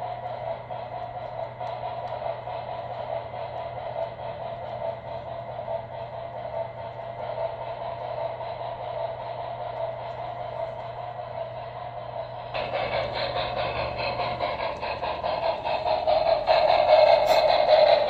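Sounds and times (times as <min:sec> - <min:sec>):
model train whirring: 0:00.0 - 0:18.0.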